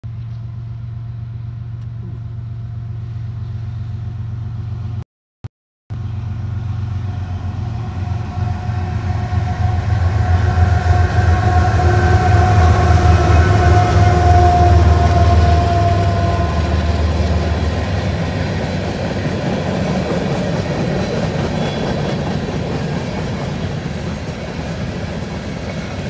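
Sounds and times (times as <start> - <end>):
diesel locomotive engine drone: 0.0 - 5.0, 5.9 - 26.0
steady whine: 5.9 - 26.0.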